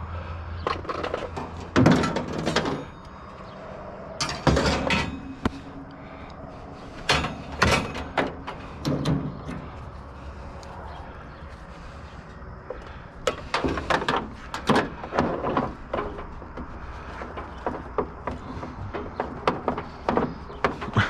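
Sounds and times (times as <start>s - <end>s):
hard objects clattering and knocking: 0.6s - 3.1s, 4.2s - 5.8s, 12.7s - 21.0s.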